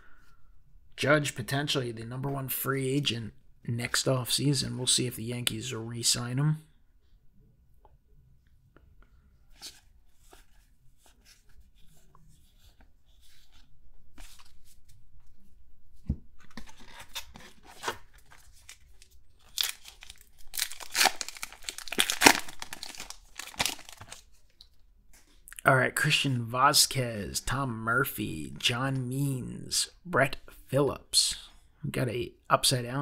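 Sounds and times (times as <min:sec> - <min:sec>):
wrapper crinkling and tearing: 0:16.6 - 0:24.6.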